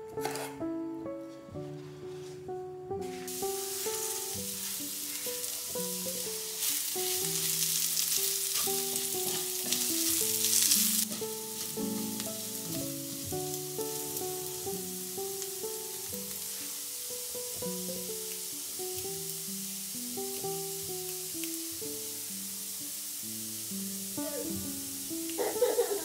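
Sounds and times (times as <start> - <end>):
soft background music: 0.0 - 26.0
potatoes sizzling in pan: 2.9 - 26.0
wooden spatula stirring: 8.2 - 12.4.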